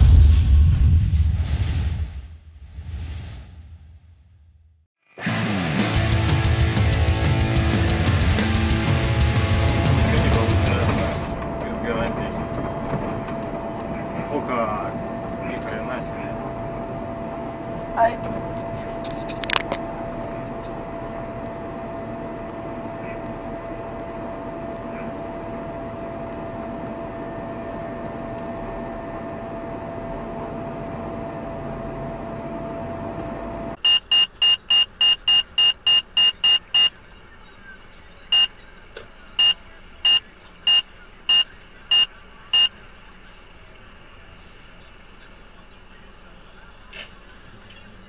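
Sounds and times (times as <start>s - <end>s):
vehicle running and road noise: 5.7s - 48.0s
shrill electronic beeps: 33.8s - 37.7s, 38.3s - 42.7s.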